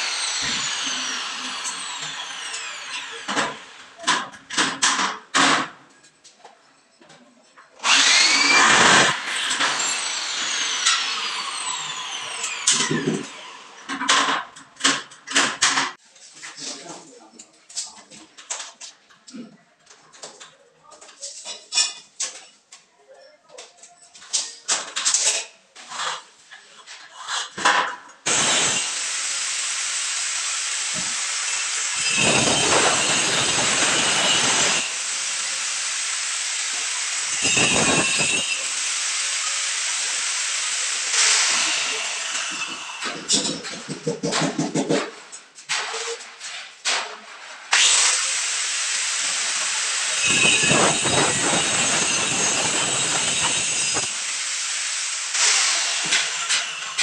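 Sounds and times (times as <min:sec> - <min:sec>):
angle grinder whining: 0:00.0 - 0:04.4, 0:07.8 - 0:15.8, 0:28.3 - 0:44.0, 0:47.8 - 0:57.0
grinder disc cutting drywall: 0:00.0 - 0:05.8, 0:07.8 - 0:16.0, 0:27.0 - 0:57.0.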